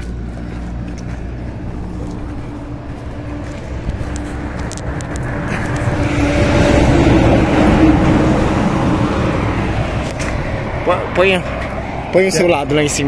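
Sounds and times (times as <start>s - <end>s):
diesel truck engine idling: 0.0s - 13.0s
engine and road noise: 0.0s - 13.0s.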